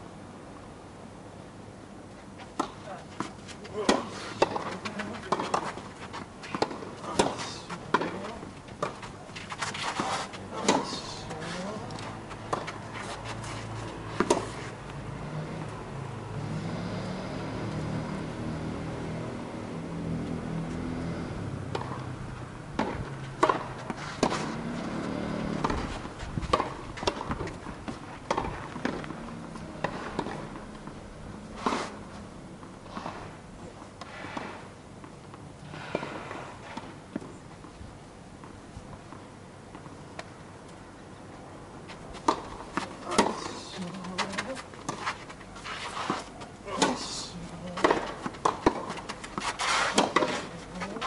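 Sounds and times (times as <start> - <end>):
tennis balls bouncing: 2.5 - 13.3, 13.9 - 15.0, 20.2 - 31.4, 42.1 - 45.5, 46.1 - 51.0
tennis balls struck by rackets: 2.5 - 13.4, 14.1 - 15.0, 21.3 - 22.1, 22.7 - 33.4, 34.0 - 37.3, 42.1 - 51.0.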